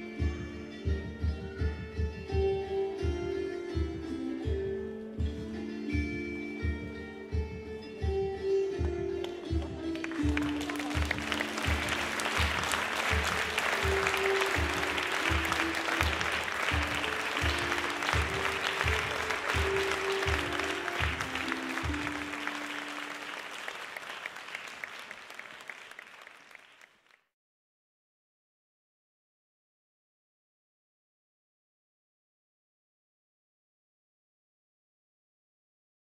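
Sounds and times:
folk dance music: 0:00.0 - 0:26.6
crowd applause: 0:09.9 - 0:27.2.

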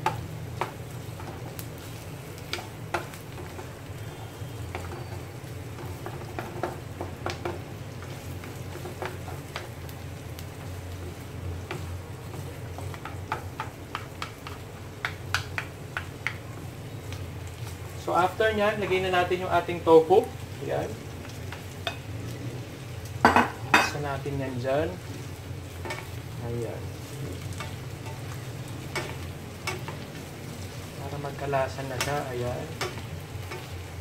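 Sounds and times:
vegetables sizzling in a pan: 0:00.0 - 0:34.0.

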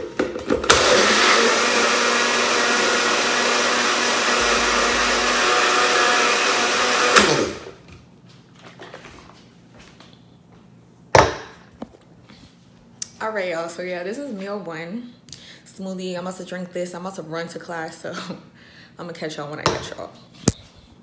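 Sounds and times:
cup blender running: 0:00.2 - 0:07.8.

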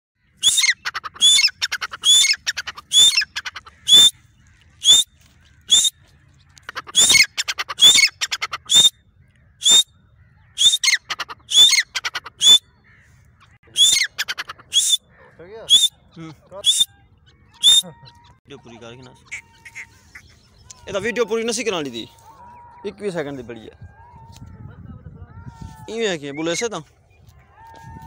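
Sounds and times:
francolin harsh rattling calls: 0:00.3 - 0:04.2, 0:06.5 - 0:09.9, 0:10.5 - 0:16.0.

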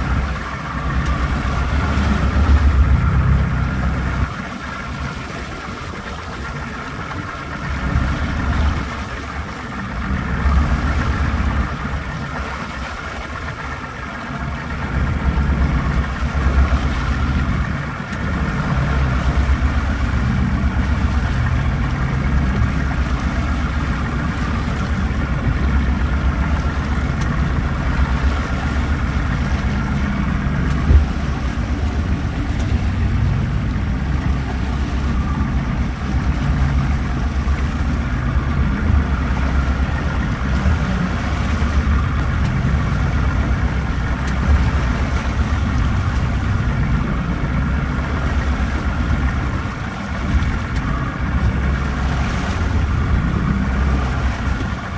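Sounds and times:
outboard motor running: 0:00.0 - 0:54.9
water washing in wake: 0:00.0 - 0:54.9.

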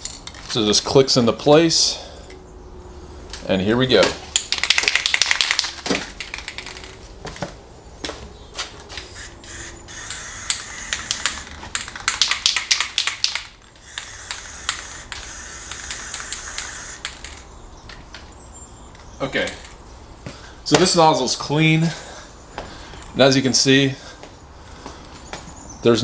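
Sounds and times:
rapid rattling clicks: 0:04.3 - 0:07.0, 0:09.9 - 0:18.2
spray paint can hissing: 0:09.1 - 0:17.4.

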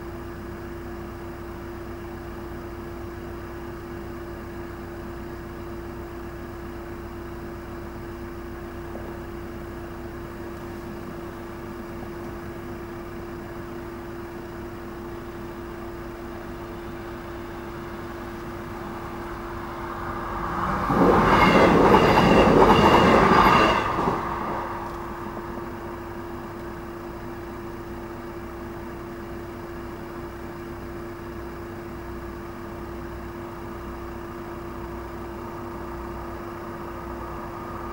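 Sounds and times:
faint steady tone: 0:10.3 - 0:37.9
train passing with wheel clatter: 0:16.3 - 0:26.8, 0:35.2 - 0:37.9.

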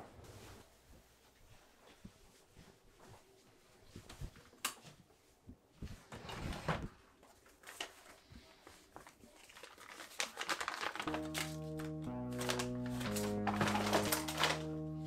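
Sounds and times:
hands handling paper: 0:07.2 - 0:14.9.

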